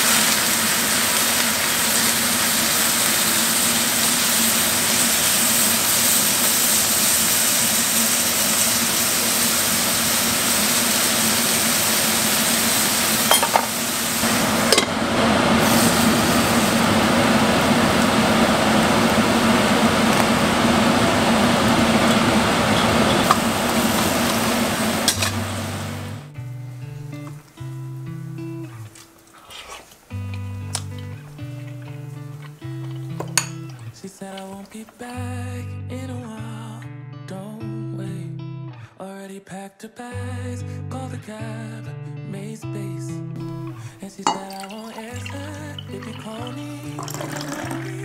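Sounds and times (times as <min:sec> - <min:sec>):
food sizzling in a skillet: 0:00.0 - 0:35.2, 0:43.4 - 0:48.0
lid clicking onto pan: 0:25.1 - 0:25.4.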